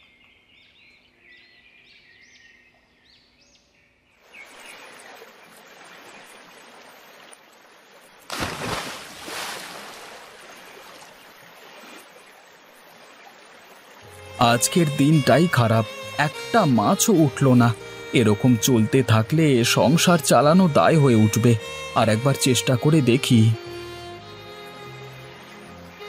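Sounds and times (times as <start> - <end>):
running water: 4.2 - 26.0
net splashing into water: 8.3 - 12.2
birds chirping: 10.6 - 26.0.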